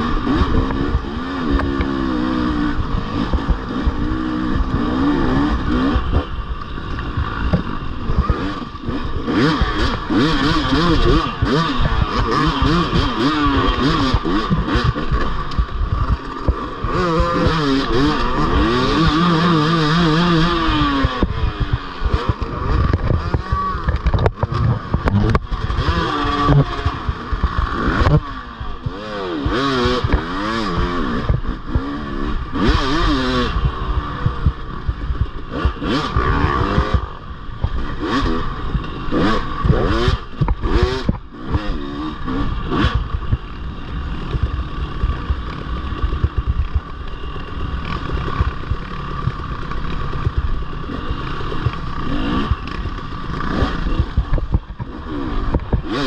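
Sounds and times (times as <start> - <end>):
dirt bike engine revving: 0.0 - 56.0
knocks and clatter: 22.1 - 28.3.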